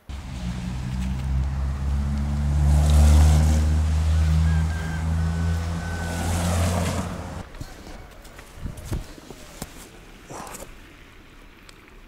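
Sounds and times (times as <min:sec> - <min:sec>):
vehicle engine droning: 0:00.0 - 0:08.4.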